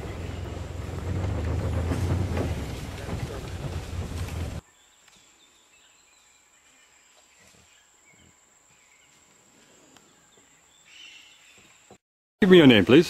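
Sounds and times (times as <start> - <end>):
soft rustles: 0.3 - 4.6.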